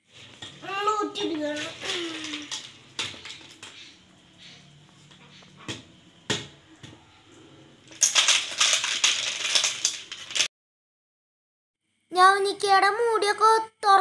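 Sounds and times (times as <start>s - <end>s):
snail shells clattering into steel bowl: 1.4s - 3.7s, 7.9s - 10.5s.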